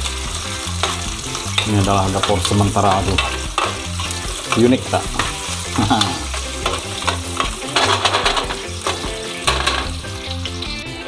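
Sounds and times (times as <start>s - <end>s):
garlic sizzling in oil: 0.0s - 11.0s
metal spoon scraping a tin: 6.2s - 9.9s.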